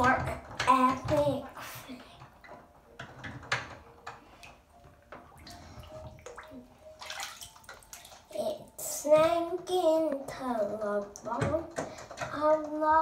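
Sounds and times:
bathwater splashing in a tub: 5.2 - 8.8.

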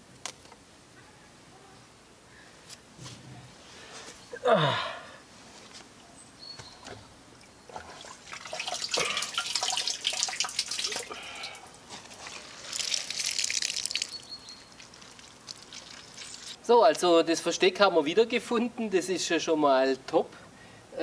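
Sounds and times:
water dripping and splashing: 6.8 - 16.7.

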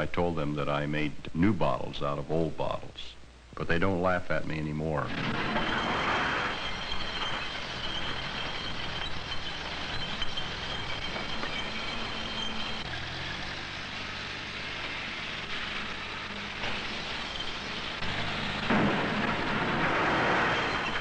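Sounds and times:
high steady whine: 0.0 - 21.0
loader engine running: 5.1 - 21.0
bucket working glass bottles: 5.2 - 19.3.

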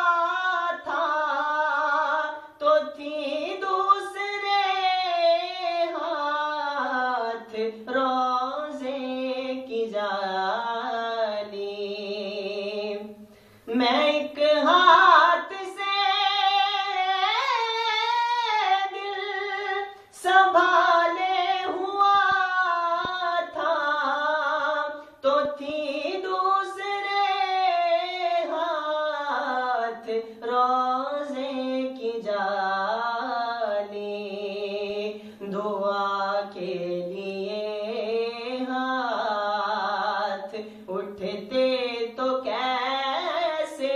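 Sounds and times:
man singing unaccompanied: 0.0 - 43.9
man breathing: 13.3 - 13.7.

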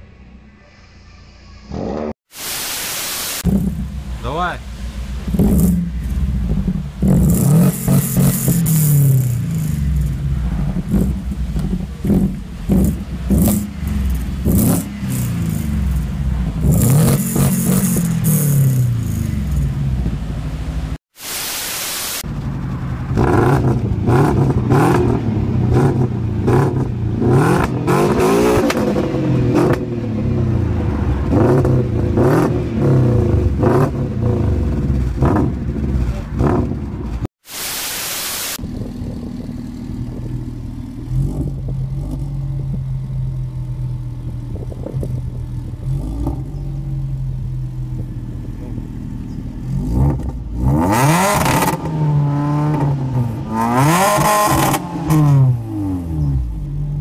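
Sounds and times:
hiss burst: 0.7 - 3.7, 21.2 - 22.3, 37.4 - 38.6
exhaust cracks: 3.4 - 20.5, 22.3 - 37.3, 38.6 - 56.9
car engine revving: 3.4 - 21.0, 22.4 - 37.3, 38.6 - 57.0
car engine idling: 3.5 - 21.0, 38.6 - 49.7.

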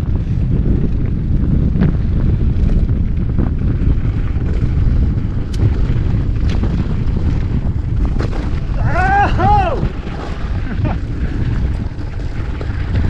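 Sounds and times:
wind buffeting microphone: 0.0 - 13.0
tyres on dirt and gravel: 3.5 - 13.0.

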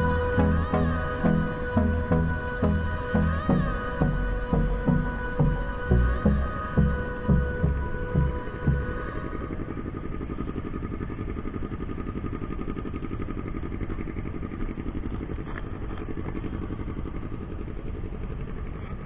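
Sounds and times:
motorcycle engine running: 0.0 - 19.0
road noise: 0.0 - 19.0.

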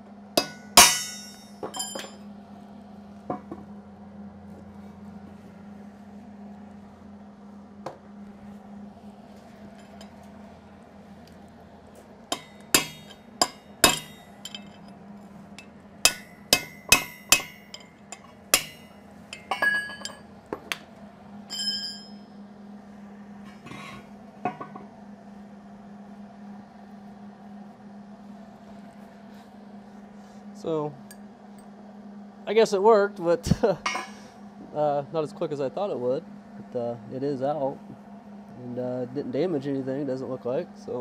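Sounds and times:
metal race clinking: 0.4 - 2.2, 12.3 - 15.0, 15.6 - 20.2, 21.5 - 22.2
metal-on-metal strikes: 0.4 - 2.2, 12.3 - 14.8, 15.6 - 20.2.

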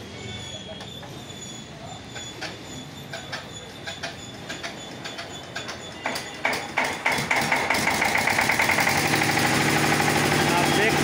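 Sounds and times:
diesel engine running: 6.7 - 11.0.

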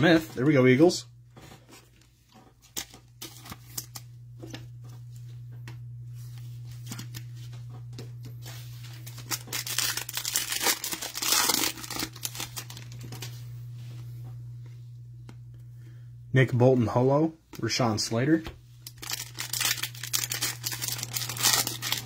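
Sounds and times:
steady low hum: 0.0 - 22.0
foil pack crinkling and tearing: 2.7 - 4.1, 8.4 - 13.3, 18.8 - 22.0.

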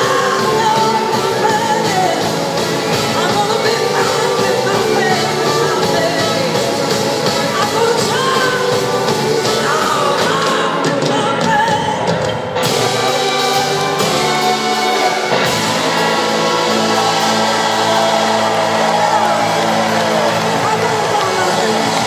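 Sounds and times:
woman singing: 0.0 - 12.6
live rock band playing: 0.0 - 22.0.

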